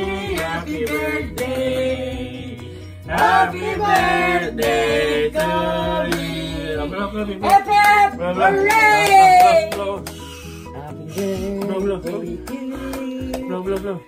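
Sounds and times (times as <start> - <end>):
song with singing voices: 0.0 - 14.0.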